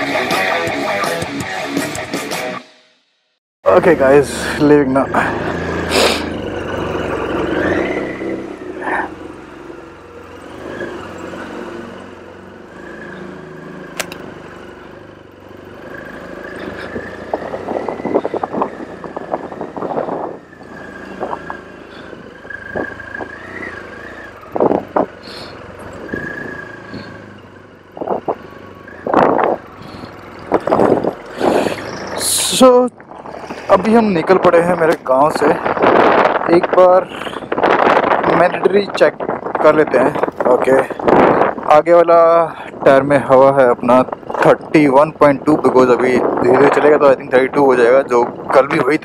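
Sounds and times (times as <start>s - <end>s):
motorcycle engine at low revs: 3.7s - 49.0s
rattles: 15.4s - 36.6s.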